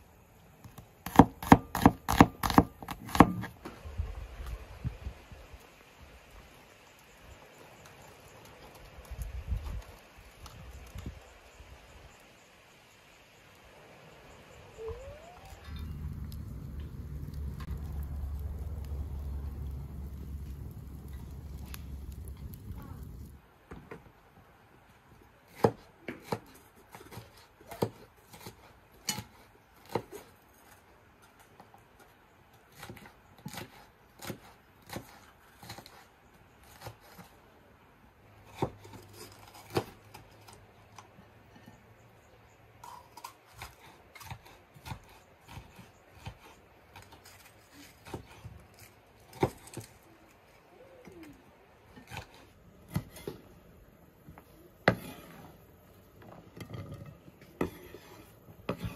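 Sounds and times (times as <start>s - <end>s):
knife chopping on wooden board: 1.1s - 3.5s.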